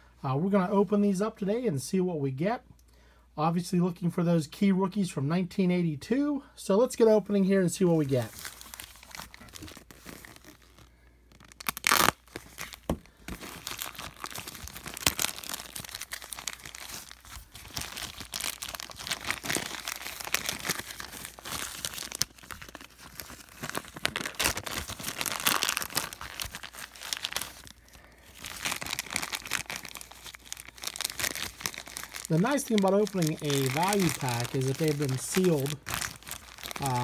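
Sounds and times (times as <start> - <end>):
plastic wrap crinkling and tearing: 8.0 - 37.0.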